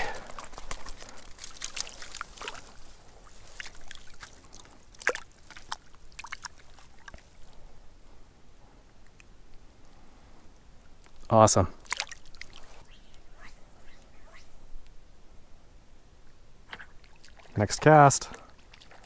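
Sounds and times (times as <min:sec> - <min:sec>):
water splashing and dripping: 0:00.0 - 0:07.4, 0:11.8 - 0:12.8, 0:16.7 - 0:19.0.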